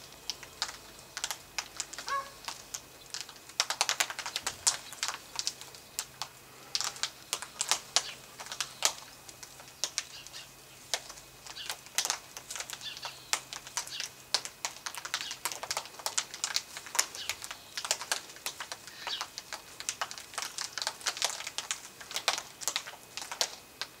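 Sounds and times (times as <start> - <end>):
birds cracking and snapping clicks: 0.0 - 24.0.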